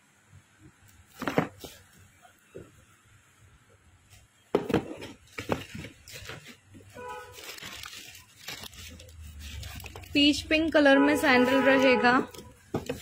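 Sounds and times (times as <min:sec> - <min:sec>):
tissue paper rustling: 0:05.4 - 0:10.4.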